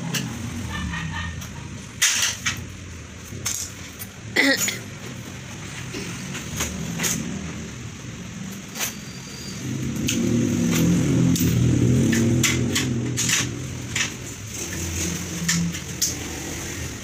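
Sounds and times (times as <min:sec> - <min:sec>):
vehicle engine running: 0:09.6 - 0:17.0.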